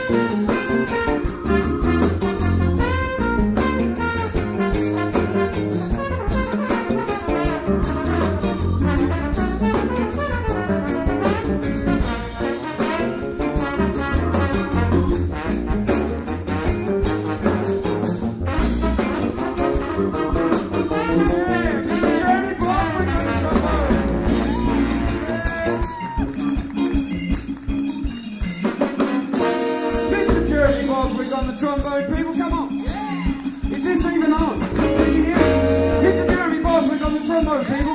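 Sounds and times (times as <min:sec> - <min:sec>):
trombone solo: 0:00.0 - 0:25.8
funk band playing: 0:00.0 - 0:37.9.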